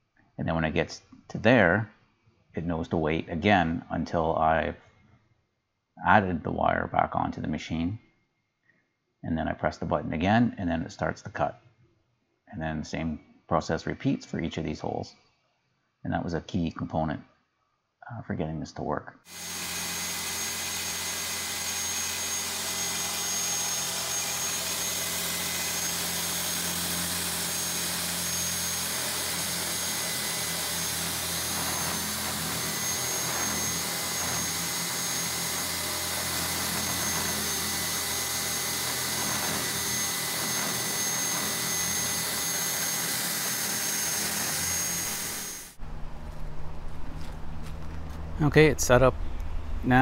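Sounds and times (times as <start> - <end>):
drill bit grinding stone: 19.3 - 45.8
core drill motor whine: 19.3 - 46.5.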